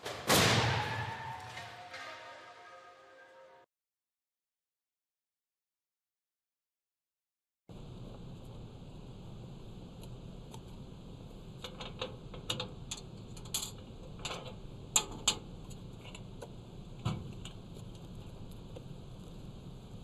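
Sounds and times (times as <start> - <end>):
steady outdoor hiss: 7.7 - 20.0.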